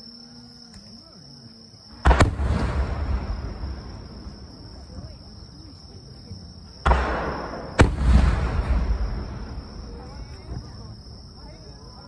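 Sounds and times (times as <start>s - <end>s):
low rumbling echo: 6.8s - 10.1s.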